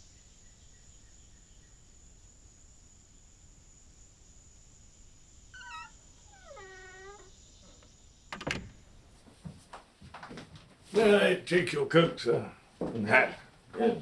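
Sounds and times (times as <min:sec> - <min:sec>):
door hinges creaking: 0:05.6 - 0:09.0.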